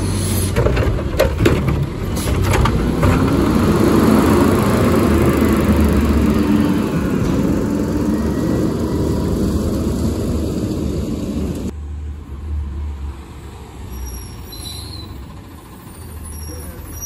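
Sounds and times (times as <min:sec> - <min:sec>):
garbage truck engine rumble: 0:00.0 - 0:11.8
noisier sound above engine: 0:00.0 - 0:11.8.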